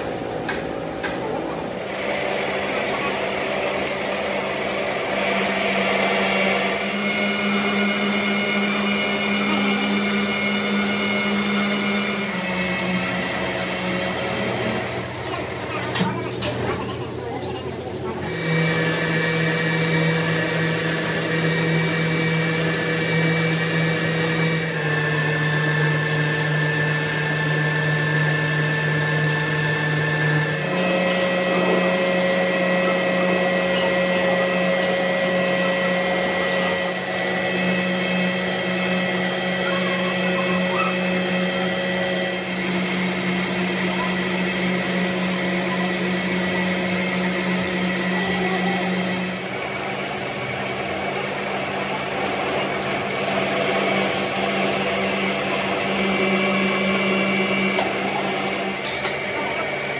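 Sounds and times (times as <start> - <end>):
electric motor humming and whining: 0.0 - 59.9.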